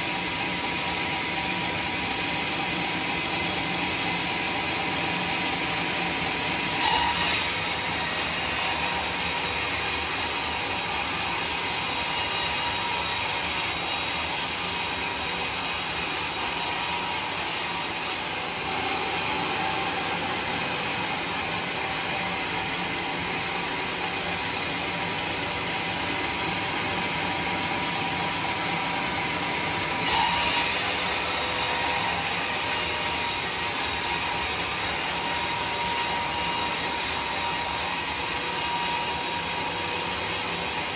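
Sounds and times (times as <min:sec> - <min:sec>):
band saw cutting through log: 0:00.0 - 0:40.9
saw motor running: 0:06.6 - 0:40.9.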